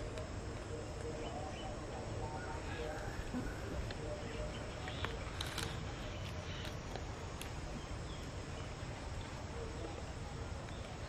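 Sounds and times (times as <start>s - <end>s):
low outdoor rumble: 0.0s - 11.0s
crackles and crunches in dry leaves: 2.4s - 11.0s.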